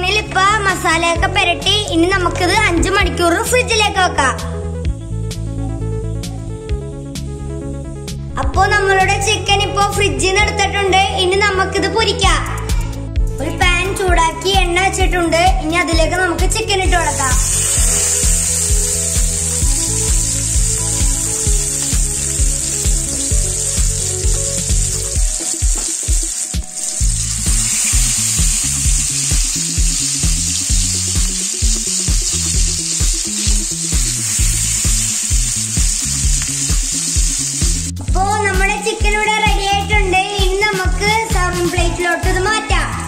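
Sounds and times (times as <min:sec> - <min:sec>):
background music with steady beat: 0:00.0 - 0:43.0
chicken sizzling in hot oil: 0:17.0 - 0:38.0.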